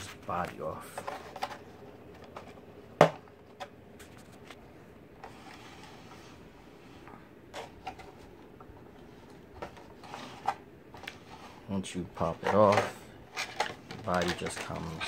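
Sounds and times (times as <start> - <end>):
plastic rubbing and sliding: 3.4 - 15.0.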